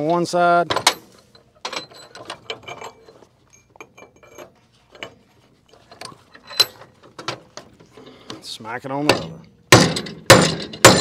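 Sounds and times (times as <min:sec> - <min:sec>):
metal pipe clinking in a vise: 0:00.0 - 0:06.9.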